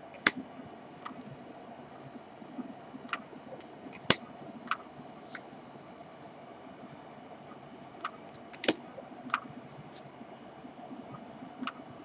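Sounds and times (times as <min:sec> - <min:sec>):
playing cards clicking: 0:08.6 - 0:09.4.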